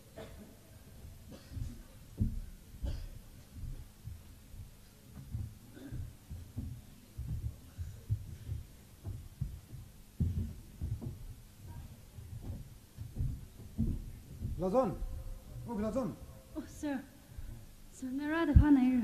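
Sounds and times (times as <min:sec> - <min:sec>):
faint steady hum: 0:00.0 - 0:19.0
footsteps on stage floor: 0:00.0 - 0:19.0.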